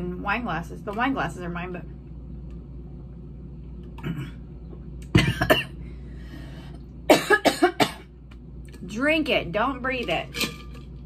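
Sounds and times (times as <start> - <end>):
woman coughing: 5.1 - 5.8, 7.1 - 8.1.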